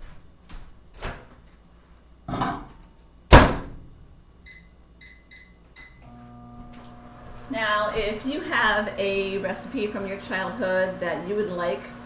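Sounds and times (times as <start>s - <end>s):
keypad beeps: 4.5s - 6.0s.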